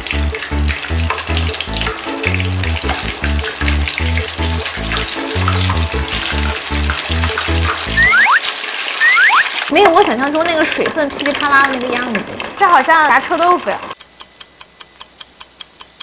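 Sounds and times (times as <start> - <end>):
background music with bass: 0.0 - 8.1
food deep-frying in oil: 0.0 - 16.0.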